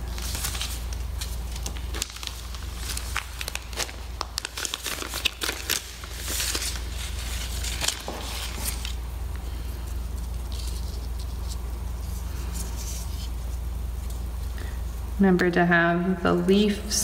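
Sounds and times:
plastic bag crinkling: 0.0 - 14.7.

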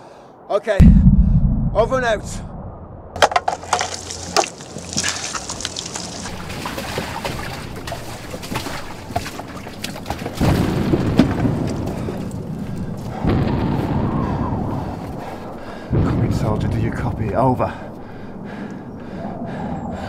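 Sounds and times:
deep rumbling boom of shellfire: 0.8 - 3.2, 13.2 - 14.9, 15.9 - 17.3.

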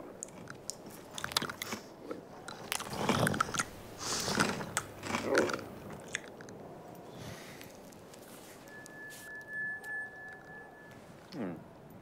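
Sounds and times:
cartoon crunchy chewing: 0.2 - 6.6.

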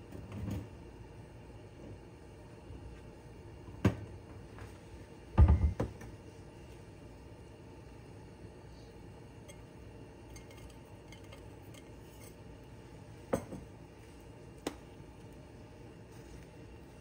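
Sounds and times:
glass bowl clinking on steel pot: 9.4 - 12.4.

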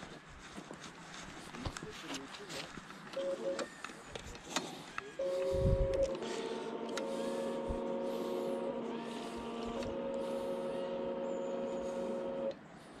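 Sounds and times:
electric motors whining: 3.2 - 12.7.

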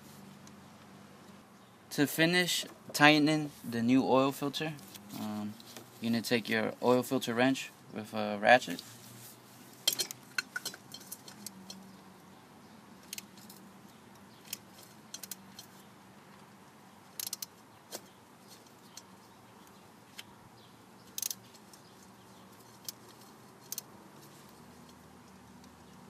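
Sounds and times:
ratchet clicking: 14.4 - 15.8, 17.2 - 17.6, 21.1 - 21.8, 22.5 - 23.9.

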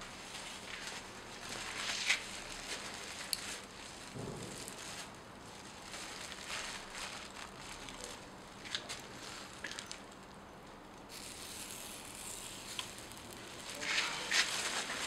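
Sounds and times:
fire crackling: 8.2 - 15.0.

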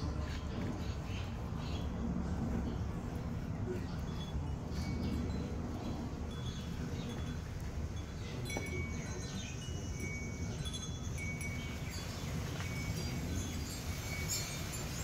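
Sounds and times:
low outdoor rumble: 0.0 - 15.0
high ringing chime tones: 4.2 - 15.0.

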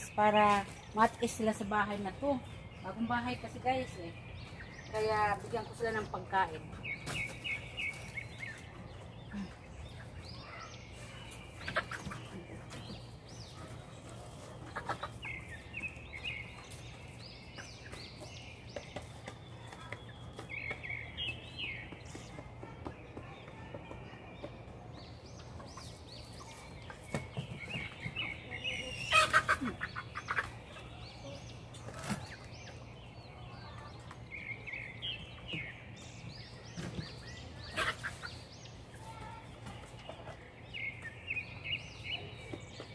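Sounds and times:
chickens making short calls: 28.9 - 30.6, 37.7 - 38.4.

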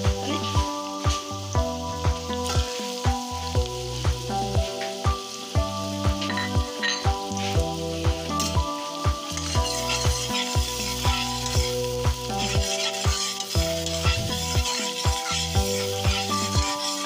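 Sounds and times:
music with bass beat: 0.0 - 16.8
onion sizzling in butter: 0.0 - 17.0
spatula stirring in pot: 9.4 - 17.0.

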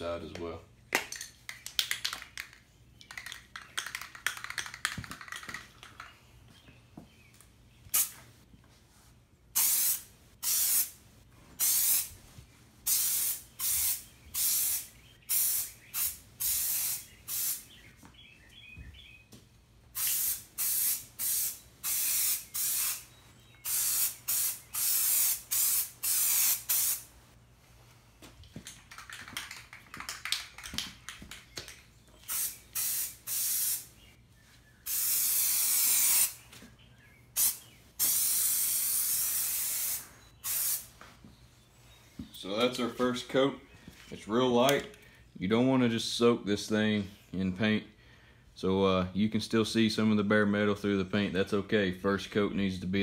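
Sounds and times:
aerosol can spraying: 9.6 - 10.9, 11.6 - 12.1, 12.9 - 17.6, 20.0 - 27.1, 32.2 - 33.9, 34.9 - 36.4, 37.4 - 40.9.

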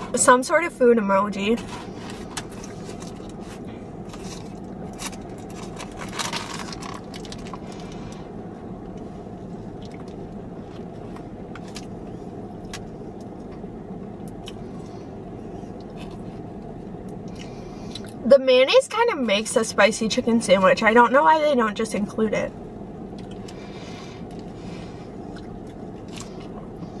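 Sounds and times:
steady low hum: 0.0 - 27.0
paper wrapper crinkling: 2.5 - 7.8
chewing: 15.7 - 18.2, 25.3 - 27.0.

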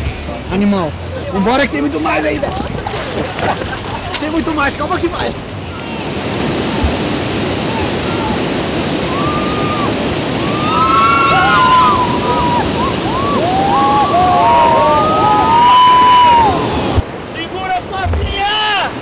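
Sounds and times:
rapids rushing: 0.0 - 19.0
people yelling: 7.6 - 19.0.

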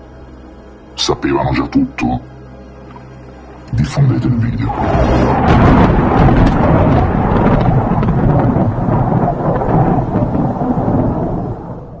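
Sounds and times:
deep rumble: 3.2 - 12.0.

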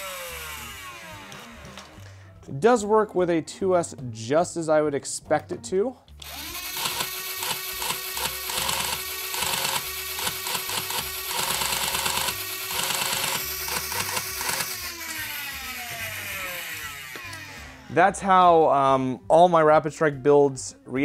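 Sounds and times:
flywheel motors whining: 0.0 - 2.0, 6.2 - 17.9.

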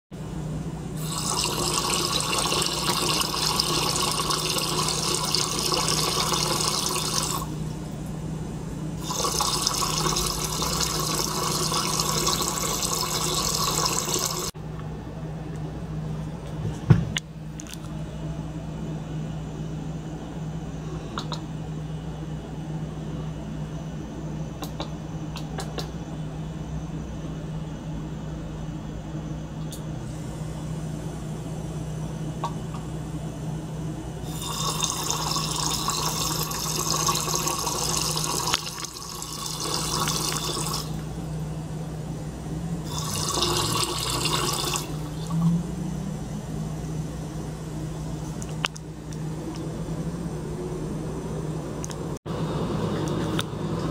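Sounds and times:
pump humming: 0.2 - 15.2, 26.1 - 53.9
knock: 16.9 - 17.1.

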